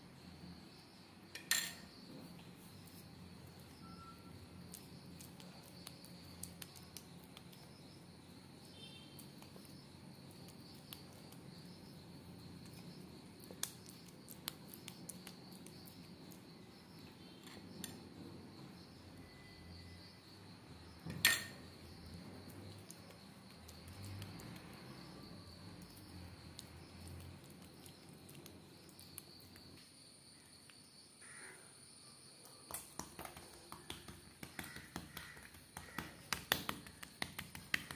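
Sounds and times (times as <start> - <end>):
faint high whine: 0.0 - 6.5, 16.0 - 22.7
dough taps on stone counter: 32.7 - 37.9.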